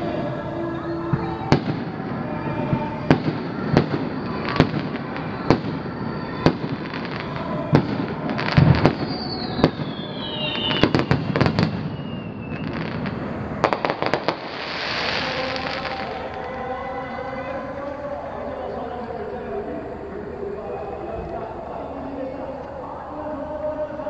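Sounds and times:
fireworks bangs: 1.0s - 17.3s
fireworks crackling pops: 2.6s - 16.6s
falling whistle: 8.8s - 12.9s.

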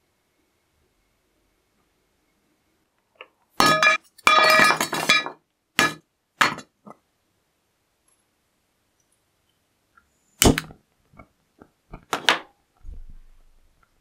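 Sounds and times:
charcoal clinking into metal bowl: 3.6s - 6.7s.

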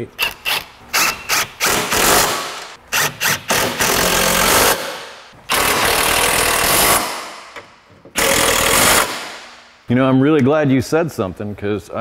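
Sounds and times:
impact wrench running: 0.2s - 7.5s, 8.2s - 9.5s.

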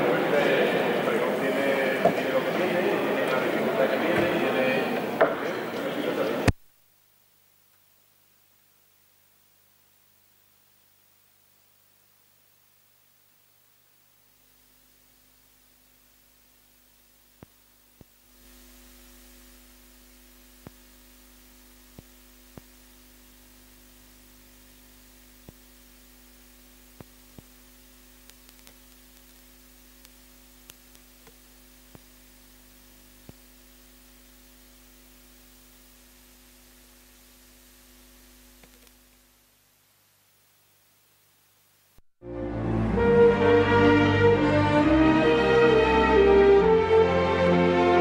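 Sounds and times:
faint mains hum: 0.0s - 48.0s
steady hiss: 0.0s - 48.0s.

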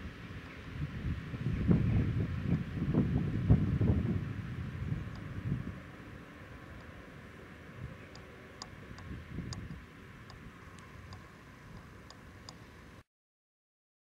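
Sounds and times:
wind rumbling on microphone: 0.0s - 13.0s
faint high ticks: 5.1s - 5.3s, 8.1s - 12.7s.

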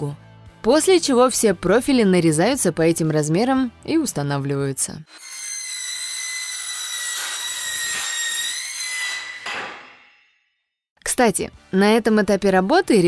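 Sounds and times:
cordless saw cutting metal: 5.1s - 10.3s.

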